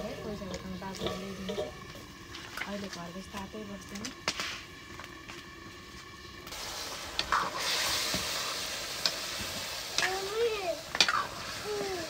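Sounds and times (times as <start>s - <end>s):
loud hissing sizzle: 0.0s - 12.0s
ladle knocking against wok: 0.5s - 2.0s.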